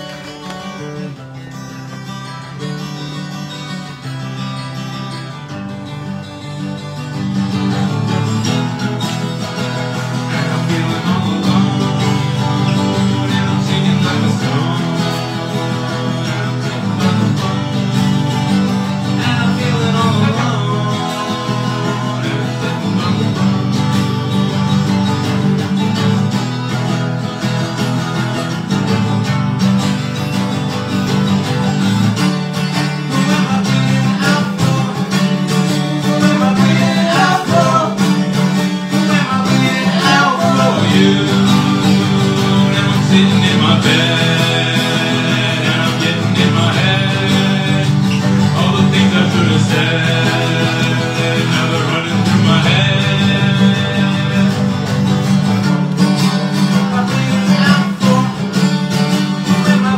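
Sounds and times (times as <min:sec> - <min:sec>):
strummed acoustic guitar: 0:00.0 - 0:59.9.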